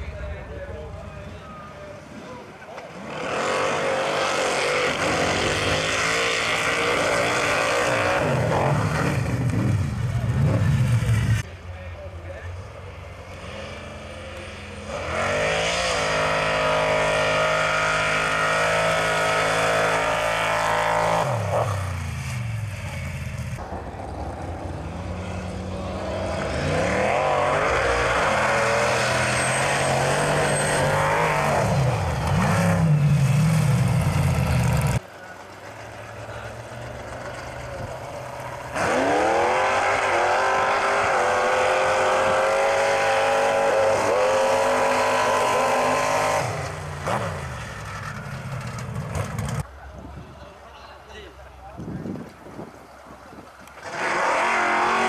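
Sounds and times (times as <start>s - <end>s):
racing engines revving hard: 2.8s - 11.5s, 13.2s - 23.6s, 24.8s - 35.0s, 36.2s - 49.7s, 53.8s - 55.0s.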